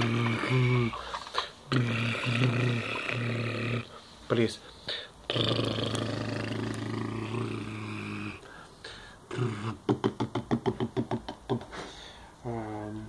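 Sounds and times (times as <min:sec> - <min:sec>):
man growling like an engine: 0:01.7 - 0:03.9, 0:05.3 - 0:08.4
man making short voiced beats: 0:09.3 - 0:11.8.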